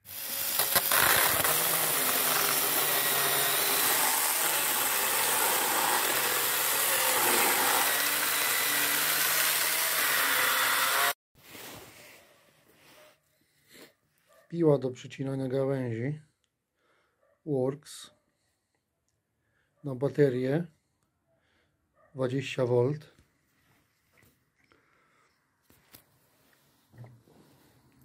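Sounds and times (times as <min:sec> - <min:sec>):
chainsaw cutting log: 0:00.0 - 0:11.2.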